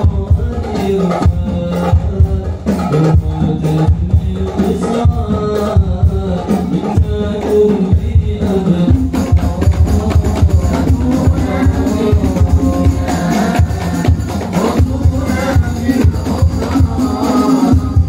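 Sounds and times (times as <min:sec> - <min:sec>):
hand drums beat: 0:00.0 - 0:18.0
men singing devotional songs: 0:00.0 - 0:18.0.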